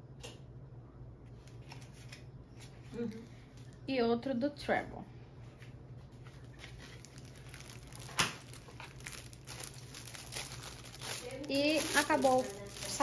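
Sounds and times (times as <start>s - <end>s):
plastic bag crinkling: 6.2s - 13.0s.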